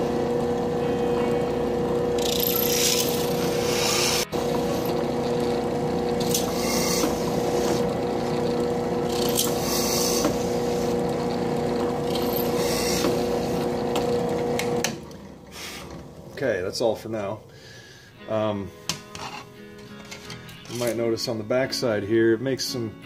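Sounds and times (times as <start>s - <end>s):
drill press humming: 0.0s - 16.4s
drill bit cutting hiss: 2.1s - 11.3s, 12.0s - 14.0s.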